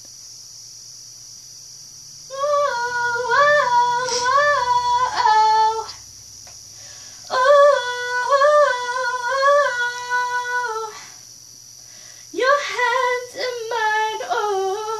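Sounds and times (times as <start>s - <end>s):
faint steady hum: 0.0s - 14.9s
woman singing alone: 2.3s - 6.0s, 7.3s - 11.2s, 12.3s - 14.9s.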